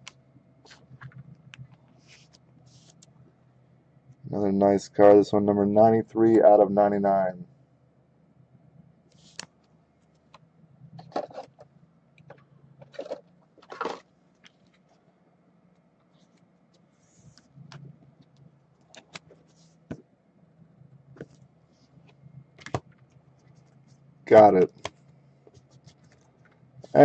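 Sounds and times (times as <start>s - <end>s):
faint low hum: 0.0s - 27.0s
cards rustling and clicking: 24.7s - 26.6s.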